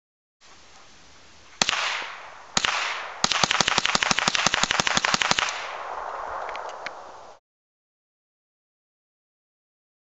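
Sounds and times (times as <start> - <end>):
rapid rifle fire: 1.6 - 6.5
rifle shots with echo: 1.6 - 7.4.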